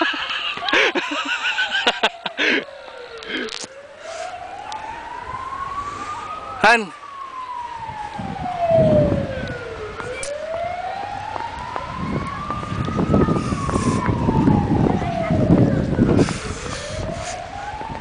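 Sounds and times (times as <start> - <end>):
wailing siren: 0.0 - 18.0
low rumbling noise: 7.4 - 18.0.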